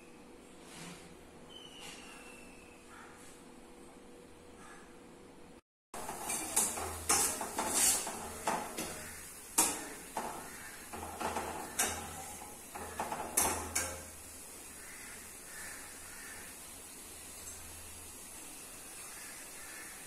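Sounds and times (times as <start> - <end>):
utensils clinking against dishes: 6.0 - 14.2.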